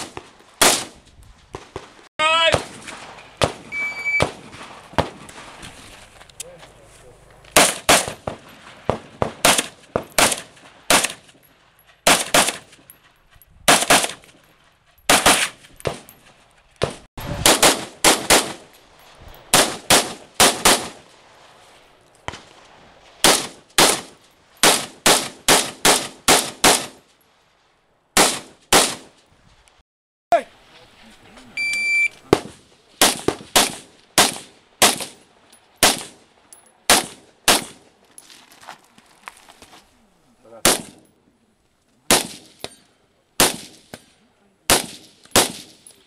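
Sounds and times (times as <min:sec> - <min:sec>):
rifle shots: 0:00.0 - 0:01.0, 0:01.6 - 0:05.6, 0:07.5 - 0:11.4, 0:12.0 - 0:12.8, 0:13.7 - 0:14.2, 0:15.1 - 0:16.1, 0:16.8 - 0:18.7, 0:19.5 - 0:21.0, 0:23.2 - 0:27.0, 0:28.2 - 0:29.1, 0:32.3 - 0:35.2, 0:35.8 - 0:36.2, 0:36.9 - 0:37.8, 0:40.6 - 0:41.1, 0:42.1 - 0:42.7, 0:43.4 - 0:44.0, 0:44.7 - 0:45.9.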